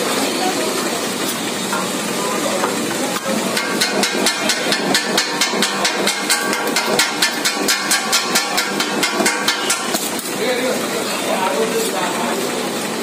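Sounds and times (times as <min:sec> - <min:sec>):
steel blades clanking on griddle: 0:01.2 - 0:10.8.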